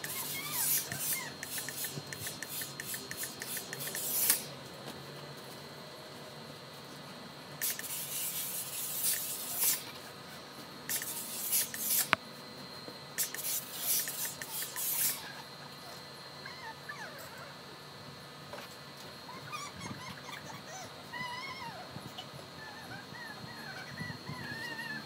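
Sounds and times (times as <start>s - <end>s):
sharp click: 0.0s - 4.5s, 10.9s - 12.2s
steam iron hissing: 0.0s - 4.6s, 7.6s - 9.9s, 10.9s - 12.2s, 13.2s - 15.2s.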